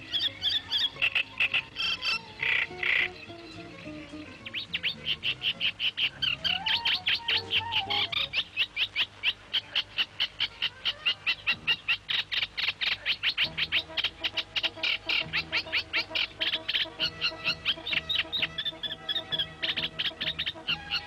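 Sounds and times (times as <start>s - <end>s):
soft music: 0.0s - 8.6s, 13.4s - 21.0s.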